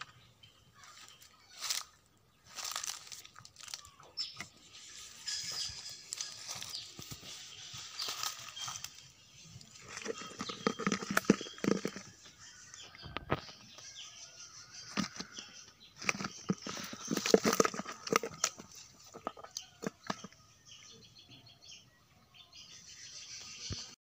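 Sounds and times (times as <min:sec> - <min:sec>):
fish thrashing in plastic bucket: 0:09.7 - 0:12.3, 0:16.0 - 0:20.4.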